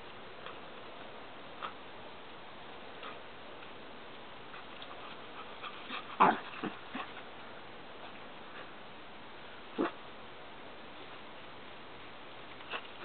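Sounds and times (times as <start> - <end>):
small dog barking: 9.8 - 10.0.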